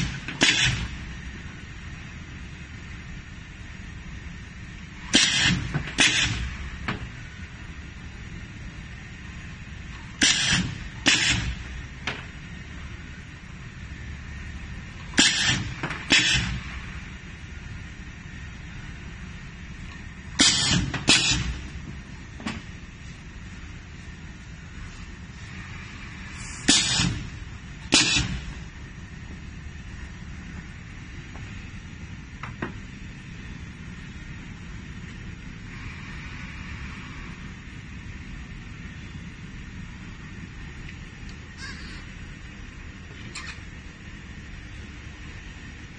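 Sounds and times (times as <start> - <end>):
pneumatic cylinders clacking: 0.0 - 1.1, 5.0 - 7.1, 9.9 - 12.4, 15.0 - 17.0, 19.9 - 22.8, 25.4 - 28.7
workshop rumble with hiss: 0.0 - 45.9
short hiss of exhausting air: 24.8 - 28.5.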